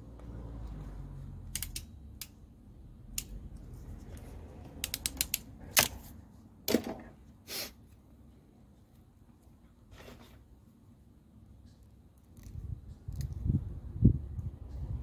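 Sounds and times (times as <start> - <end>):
crimping pliers clicking: 1.5 - 2.4, 4.8 - 6.0
tool and connector handling: 1.5 - 2.4, 3.2 - 6.1.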